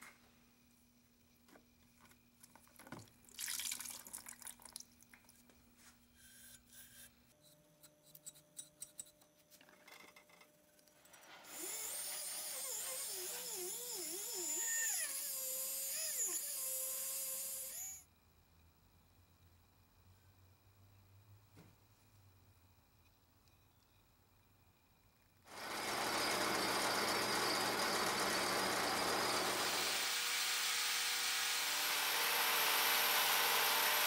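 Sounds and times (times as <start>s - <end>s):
water splashing in tub: 3.3s - 4.8s
rotary tool whining on metal: 11.4s - 18.0s, 25.5s - 34.0s.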